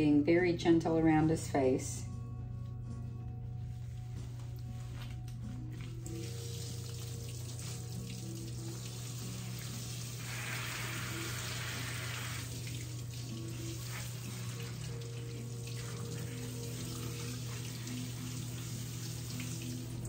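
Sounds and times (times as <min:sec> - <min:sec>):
soft background music: 0:00.0 - 0:20.0
hose water spraying: 0:06.1 - 0:20.0.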